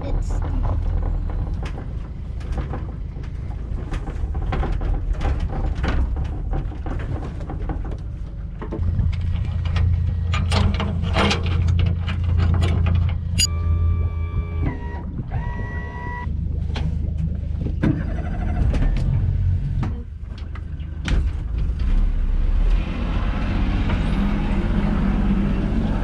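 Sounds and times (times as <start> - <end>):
boat trailer rattling and clanking: 0.0 - 13.5, 16.2 - 22.6
low rumble: 0.0 - 26.0.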